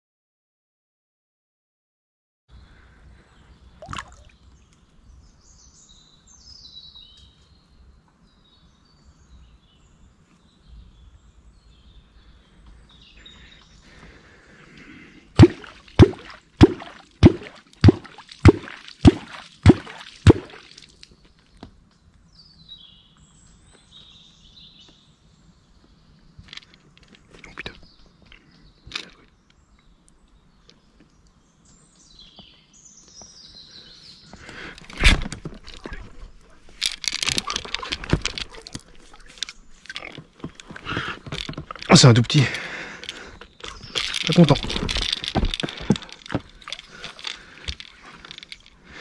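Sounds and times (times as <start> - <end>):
faint lapping water: 2.7 - 4.8, 13.2 - 21.2, 34.4 - 49.0
sharp hollow knocks: 15.4 - 20.7, 43.8 - 46.8.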